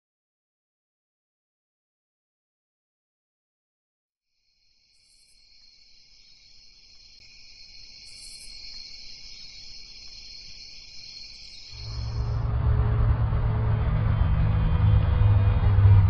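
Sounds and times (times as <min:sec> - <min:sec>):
crickets chirping: 0:04.4 - 0:12.5
high-pitched buzzes: 0:11.2 - 0:15.6.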